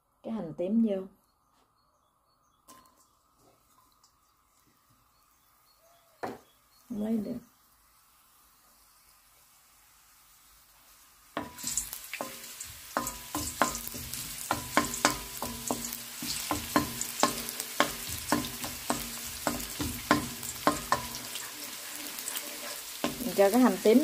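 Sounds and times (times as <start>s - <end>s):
shallots sizzling in hot oil: 3.7s - 24.0s
wooden spoon knocking on wok: 11.4s - 21.4s, 23.0s - 24.0s.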